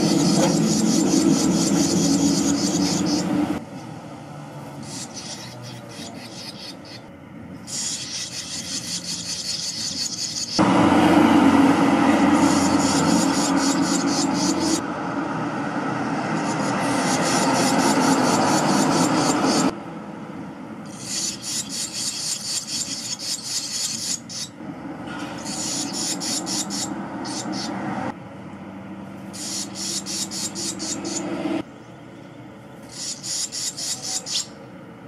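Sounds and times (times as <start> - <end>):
nestlings chirping: 0.0 - 3.6, 4.6 - 10.7, 12.0 - 14.9, 15.9 - 19.8, 20.8 - 24.6, 25.2 - 28.0, 29.2 - 31.4, 32.8 - 34.6
loud rushing noise: 10.6 - 20.8, 30.5 - 31.7.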